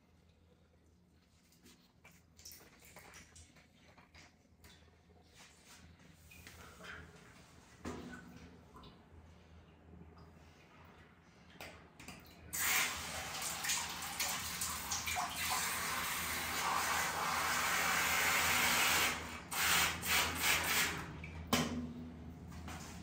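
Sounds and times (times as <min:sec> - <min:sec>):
water spraying into balloon: 0:12.6 - 0:21.0.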